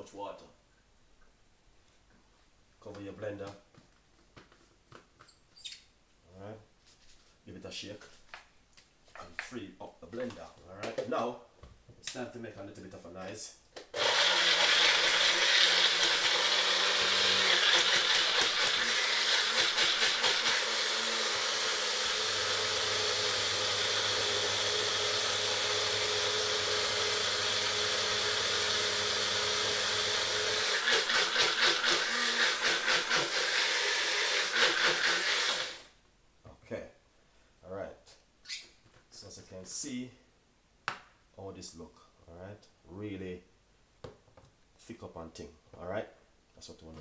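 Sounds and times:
blender motor chopping: 0:13.9 - 0:35.9.

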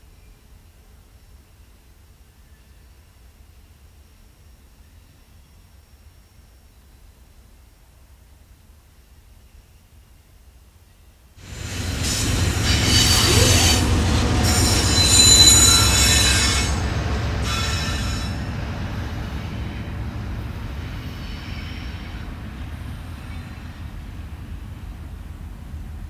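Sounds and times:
steel wheels squealing: 0:11.4 - 0:19.9, 0:20.8 - 0:22.3
diesel locomotive: 0:11.4 - 0:26.0
freight train rumbling: 0:11.4 - 0:26.0.

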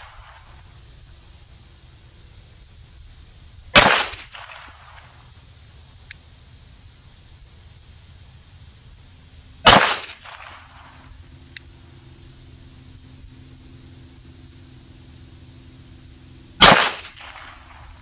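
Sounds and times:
pistol shots with echo: 0:03.7 - 0:05.0, 0:09.6 - 0:10.9, 0:16.6 - 0:17.8
faint tick: 0:06.0 - 0:06.2.

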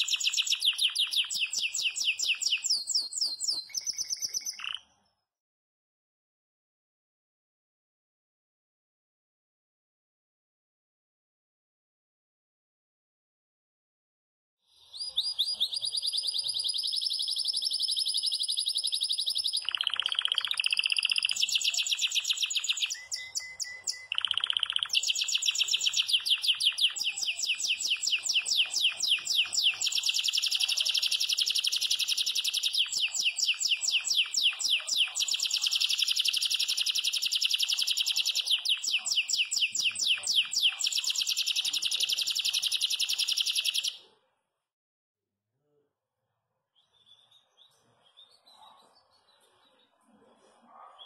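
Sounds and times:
canary singing trills: 0:00.0 - 0:05.0, 0:14.9 - 0:44.1.

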